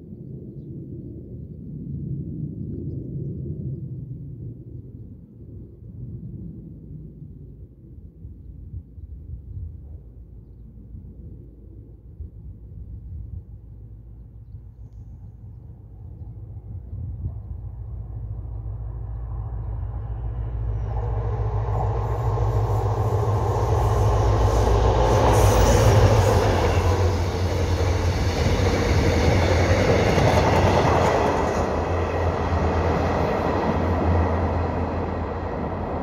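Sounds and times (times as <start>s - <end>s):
diesel locomotive engine drone: 11.5s - 36.0s
train rolling noise: 16.6s - 36.0s.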